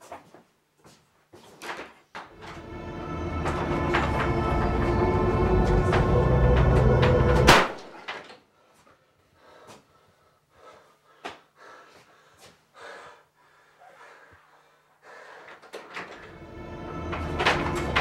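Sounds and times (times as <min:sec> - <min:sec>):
eerie music: 0:02.4 - 0:07.9, 0:16.2 - 0:18.0.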